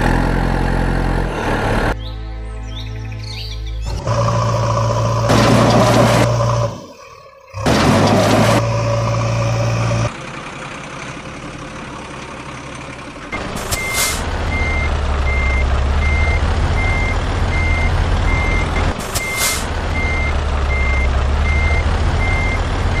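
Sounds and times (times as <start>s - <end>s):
diesel engine rumble: 0.0s - 2.0s, 3.8s - 23.0s
truck reversing alarm beeping: 13.3s - 23.0s
air brake hisses: 13.6s - 14.2s, 19.0s - 19.7s.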